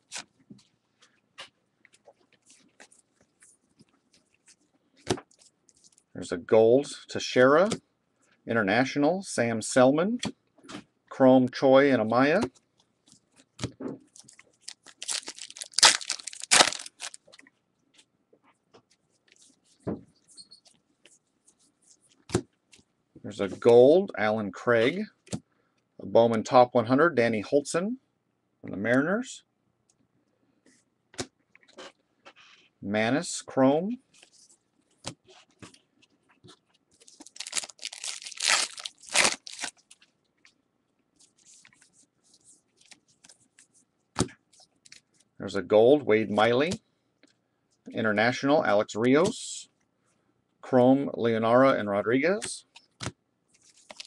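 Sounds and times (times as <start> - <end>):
card pack wrapper crinkling: 14.1 - 17.4, 37.0 - 40.0, 53.6 - 54.0.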